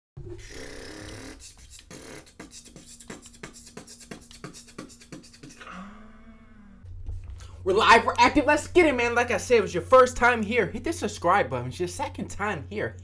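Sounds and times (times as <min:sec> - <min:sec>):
steady low note: 0:05.7 - 0:13.0.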